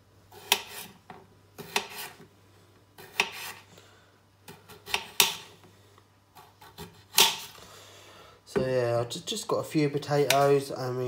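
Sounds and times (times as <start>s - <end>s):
knife slicing potatoes: 0.3s - 2.3s, 3.0s - 3.7s, 4.4s - 5.6s, 6.3s - 7.6s.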